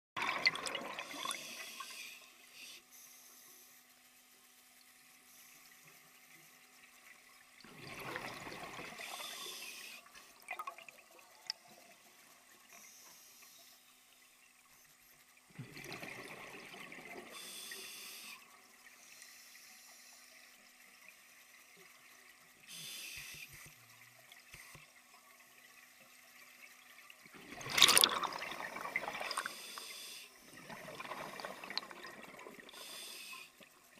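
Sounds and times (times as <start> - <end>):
exhaled bubbles burbling: 0.2 - 1.5, 7.6 - 9.0, 15.5 - 17.3, 27.3 - 29.5, 30.6 - 32.8
diver breathing through regulator: 32.7 - 33.6.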